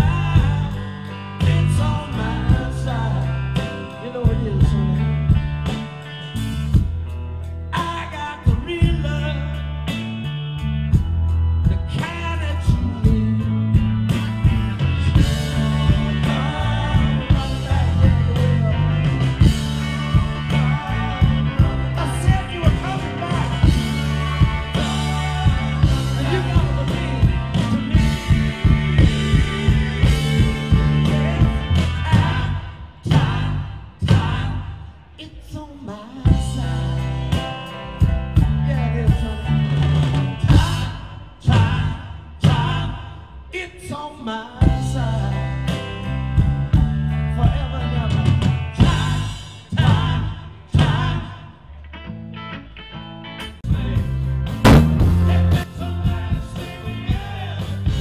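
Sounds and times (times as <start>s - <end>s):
live rock band playing: 0.0s - 43.3s, 44.6s - 58.0s.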